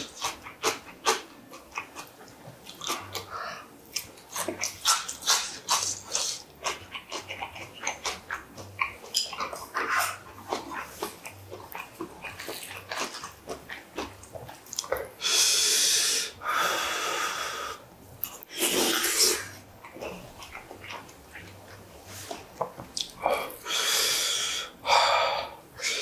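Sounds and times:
man chewing: 0.0 - 17.1, 18.2 - 26.0.

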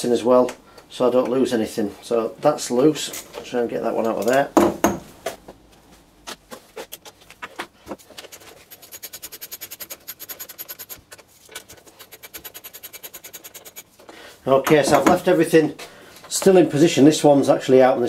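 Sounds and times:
socket ratchet clicking: 8.2 - 13.9.

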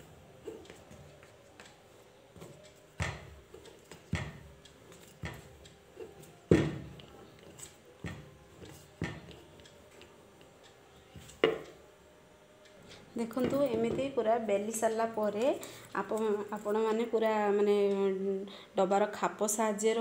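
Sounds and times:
rolling pin knocking on surface: 3.0 - 5.5, 6.5 - 7.1, 8.0 - 9.4, 11.2 - 11.6.

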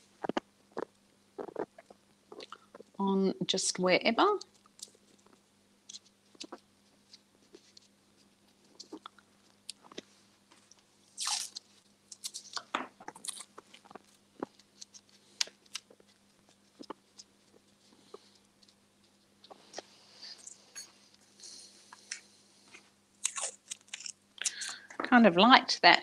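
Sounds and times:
small crackles and clicks: 4.3 - 20.6
masking tape tearing: 11.2 - 13.6.

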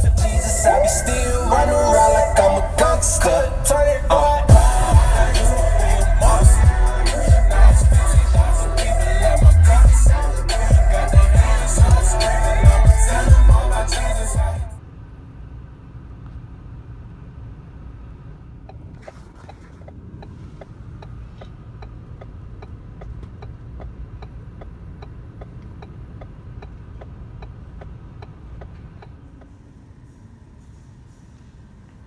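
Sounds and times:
music: 0.0 - 14.8
engine and road rumble: 0.0 - 32.0
turn signal clicking: 18.2 - 30.0.

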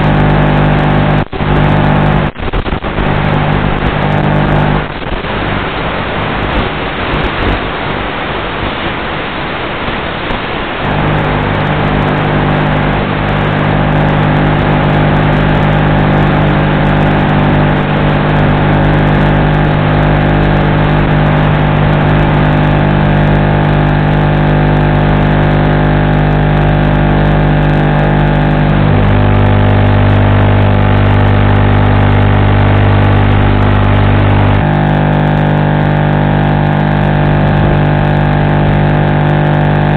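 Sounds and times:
deep hum: 0.0 - 8.0, 10.7 - 39.9
electrical interference buzz: 0.0 - 39.9.

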